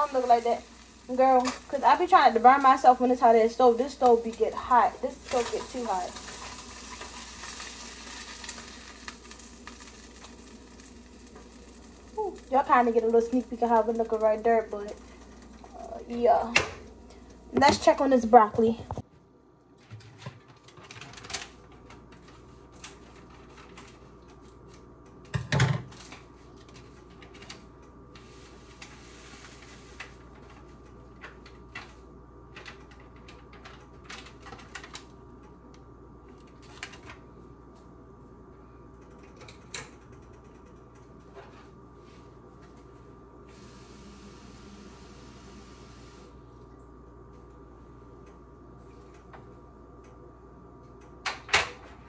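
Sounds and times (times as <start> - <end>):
water running from tap: 0.0 - 4.0, 4.6 - 16.4
low hum: 41.0 - 51.2.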